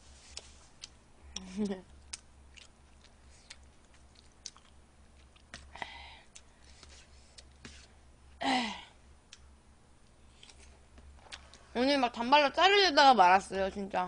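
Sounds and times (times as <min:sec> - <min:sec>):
woman sighing: 0:08.4 - 0:09.0.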